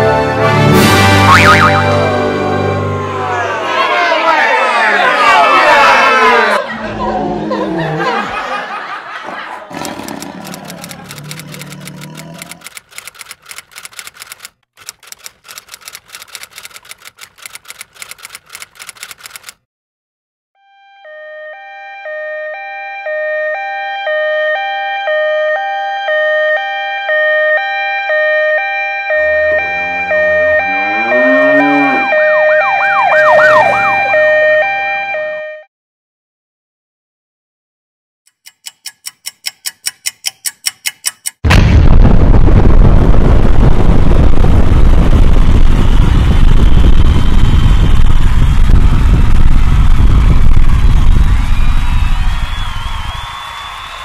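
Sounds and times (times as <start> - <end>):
two-tone hi-lo siren: 1.1 - 3.2, 20.6 - 35.7
deep explosion rumble with crackle: 41.5 - 52.6.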